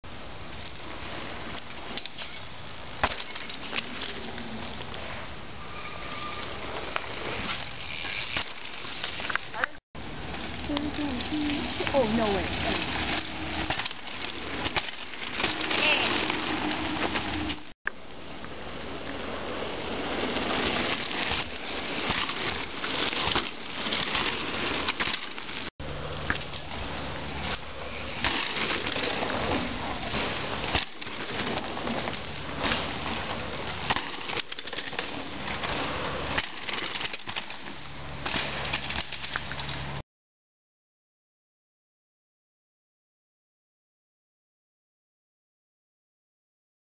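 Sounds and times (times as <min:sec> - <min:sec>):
dry leaves crunching under bike: 0:07.1 - 0:17.5, 0:19.2 - 0:40.0.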